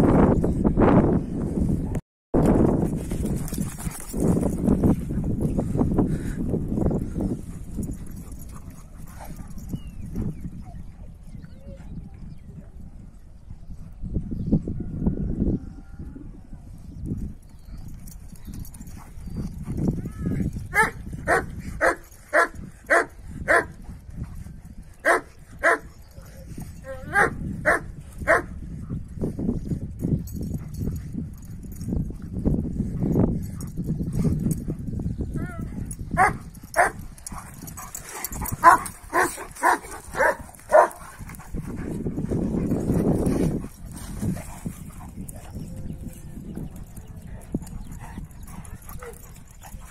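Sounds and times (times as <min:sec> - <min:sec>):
dogs scuffling: 0:02.7 - 0:05.0
dog barking: 0:20.7 - 0:23.7, 0:25.0 - 0:25.9, 0:27.0 - 0:28.5, 0:36.2 - 0:37.0, 0:38.6 - 0:41.0.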